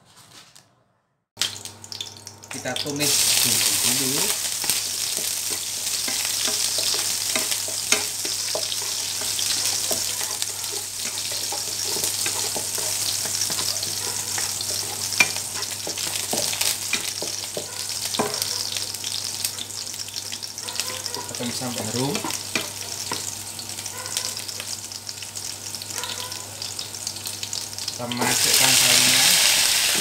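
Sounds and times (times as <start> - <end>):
garlic sizzling in hot oil: 1.4 - 30.0
spatula scraping a wok: 3.2 - 18.7.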